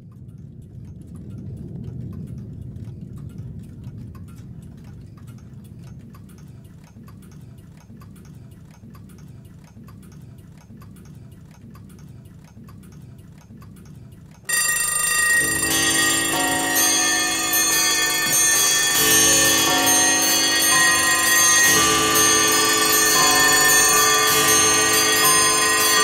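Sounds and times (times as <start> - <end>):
clock ticking: 0.0 - 26.0
low rumble: 0.1 - 6.2
bell-like chime: 14.5 - 26.0.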